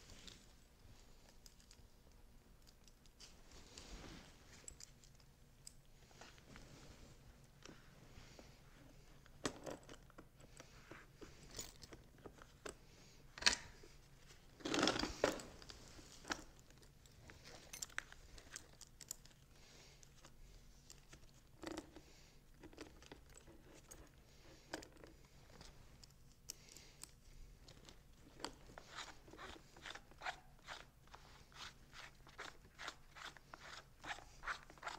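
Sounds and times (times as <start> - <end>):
chain links clicking and rattling: 15.1 - 19.4.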